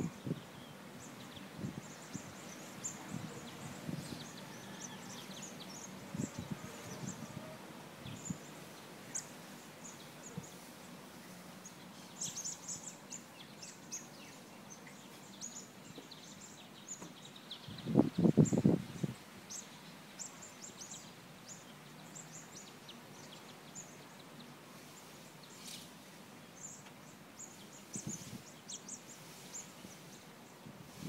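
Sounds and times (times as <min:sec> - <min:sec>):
rustles: 0:00.0 - 0:31.0
small birds chirping: 0:00.0 - 0:31.0.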